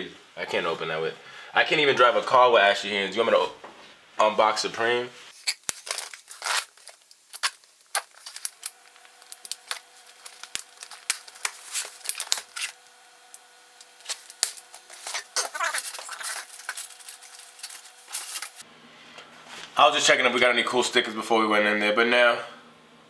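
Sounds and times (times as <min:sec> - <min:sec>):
packing tape squeaking off: 0:05.3 - 0:12.9, 0:13.8 - 0:18.6
cardboard box crackling and rustling: 0:14.0 - 0:18.6.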